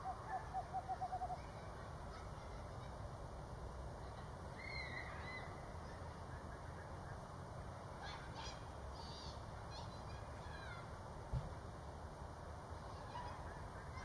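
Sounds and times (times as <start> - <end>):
owl hooting: 0.0 - 1.5
higher wavering bird call: 0.0 - 1.6.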